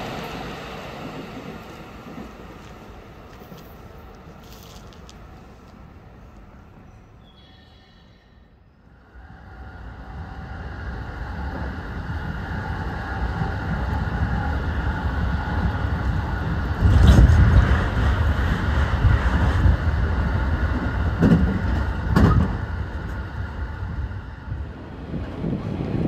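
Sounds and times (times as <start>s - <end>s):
train rumble inside carriage: 0.0s - 26.0s.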